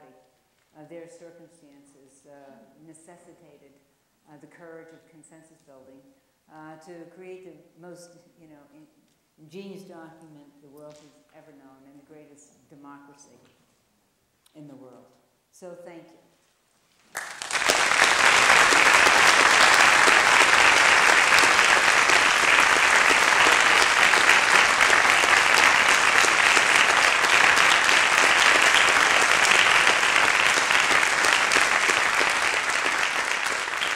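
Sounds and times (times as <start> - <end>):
audience applauding: 17.1 - 33.9.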